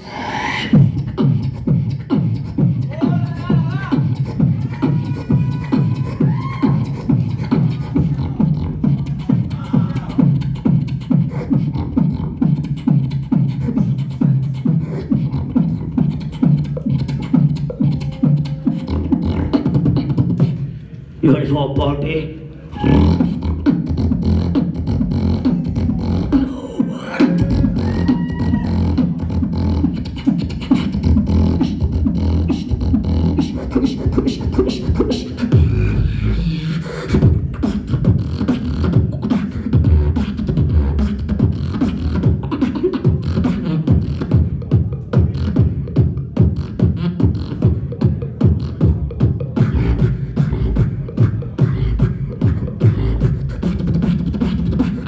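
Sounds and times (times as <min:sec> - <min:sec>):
beatboxing into microphone: 0:00.0 - 0:55.0
low buzzing bass tones: 0:27.2 - 0:30.1.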